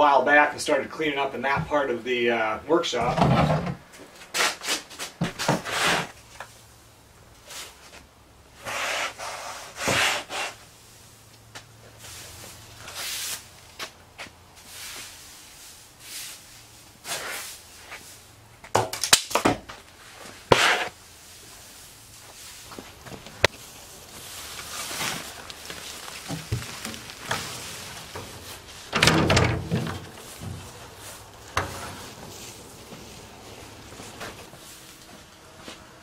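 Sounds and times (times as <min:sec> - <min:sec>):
wood shavings scraped off concrete: 0:20.2 - 0:28.9.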